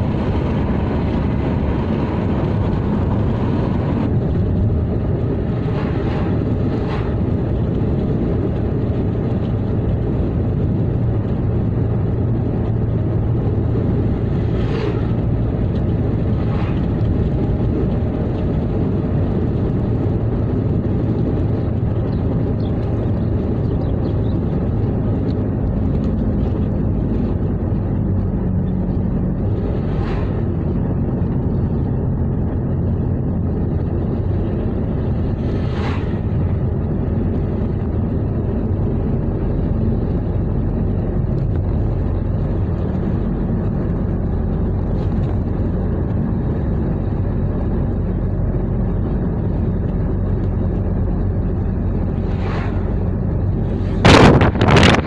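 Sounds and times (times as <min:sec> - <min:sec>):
passing whooshes: 0:00.0 - 0:08.0, 0:13.7 - 0:17.8, 0:29.3 - 0:31.1, 0:34.2 - 0:37.8, 0:51.1 - 0:55.0
car road and engine noise: 0:00.0 - 0:55.0.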